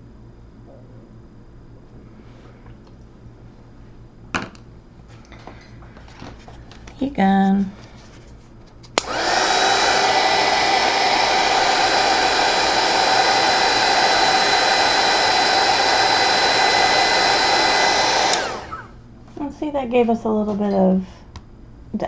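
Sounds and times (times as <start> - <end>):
heat gun motor whine: 9.0 - 19.0.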